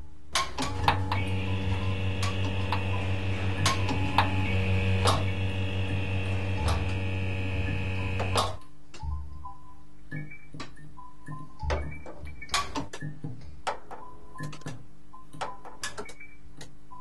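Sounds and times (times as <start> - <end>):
electrical hum with buzz: 0.0 - 9.6.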